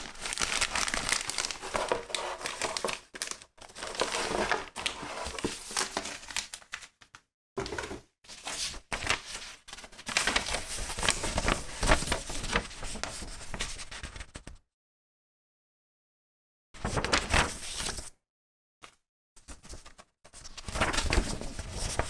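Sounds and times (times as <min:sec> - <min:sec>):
paper and plastic bag rustling: 0:00.0 - 0:06.5.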